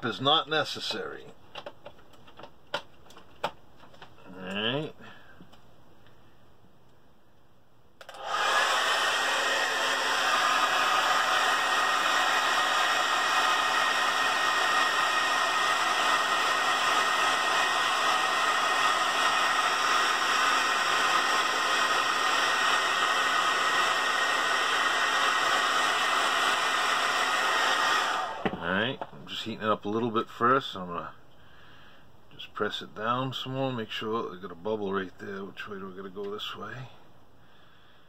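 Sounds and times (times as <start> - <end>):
hair dryer running: 8.0 - 29.0.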